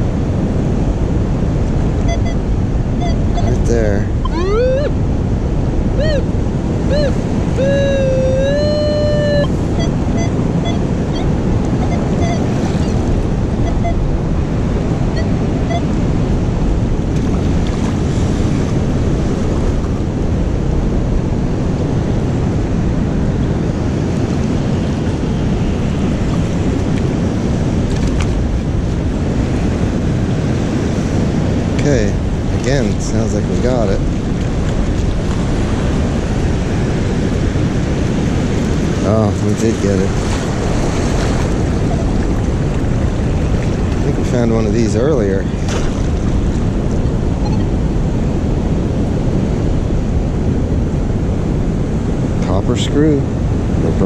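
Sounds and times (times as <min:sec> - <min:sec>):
surf: 0:00.0 - 0:54.0
wind on microphone: 0:00.0 - 0:54.0
metal detector tones: 0:02.0 - 0:02.4, 0:03.0 - 0:04.9, 0:06.0 - 0:13.0, 0:13.6 - 0:14.0, 0:15.1 - 0:16.0.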